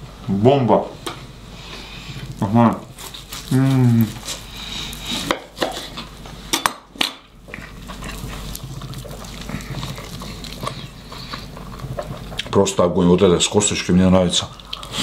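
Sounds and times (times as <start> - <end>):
chewing: 2.2 - 6.1, 7.4 - 12.6, 14.4 - 15.0.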